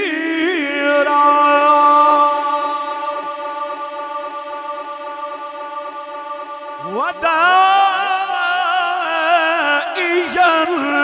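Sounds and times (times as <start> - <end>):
man chanting melodic recitation: 0.0 - 3.2, 6.8 - 11.0.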